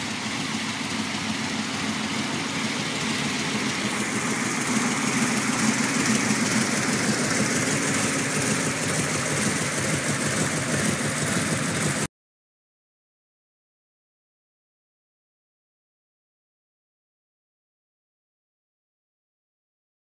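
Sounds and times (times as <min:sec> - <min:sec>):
unmuffled engine running: 0:00.0 - 0:12.1.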